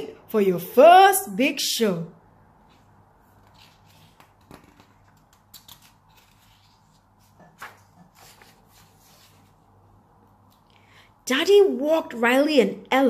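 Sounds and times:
paper rustling: 2.7s - 9.7s.

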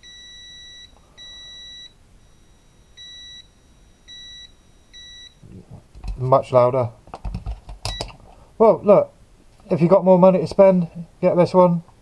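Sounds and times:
multimeter continuity beeps: 0.0s - 5.4s, 7.9s - 8.2s.

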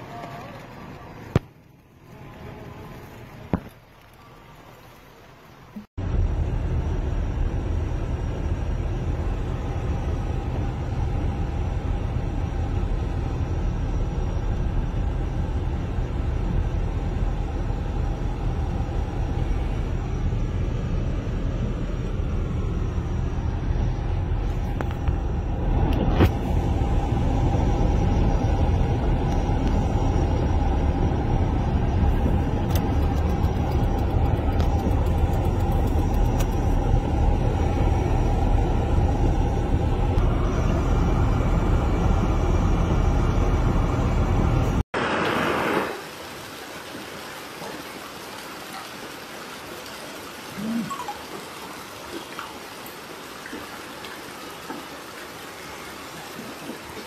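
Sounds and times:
car driving on wet road: 23.4s - 46.2s.

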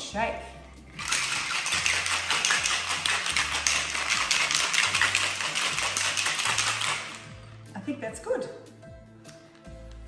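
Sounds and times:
ice rattling in cocktail shaker: 0.9s - 7.5s.

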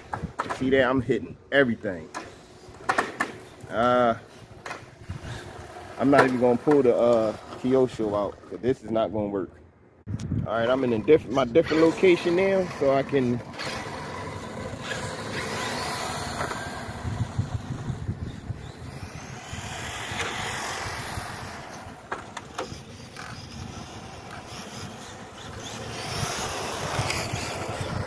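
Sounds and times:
small tyres rumbling on pavement: 1.6s - 9.0s, 10.6s - 28.0s
electric motor and gear whine: 10.7s - 28.0s.

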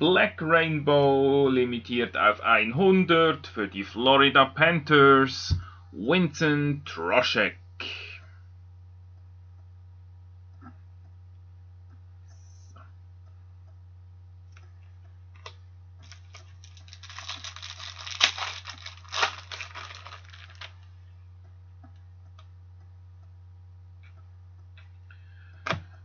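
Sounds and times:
foil wrapper crinkling and tearing: 15.4s - 20.9s.

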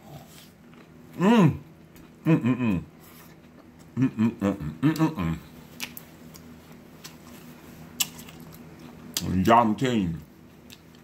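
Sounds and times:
man humming with mouth full: 1.2s - 3.0s, 3.9s - 5.5s.

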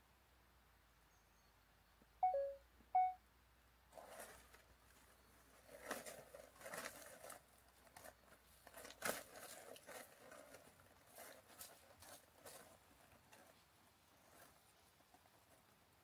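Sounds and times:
dry grass and leaves crackling: 3.9s - 15.6s.

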